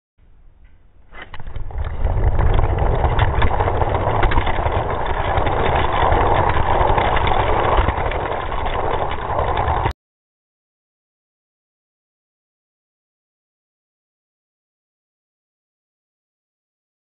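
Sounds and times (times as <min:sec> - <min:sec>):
toy cars rolling on plastic track: 0:01.2 - 0:09.9.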